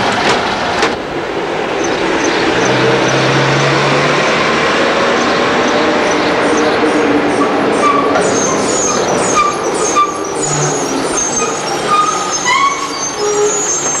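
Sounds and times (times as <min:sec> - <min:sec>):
diesel buses passing: 0:00.0 - 0:14.0
short high-pitched squeaks: 0:07.8 - 0:14.0.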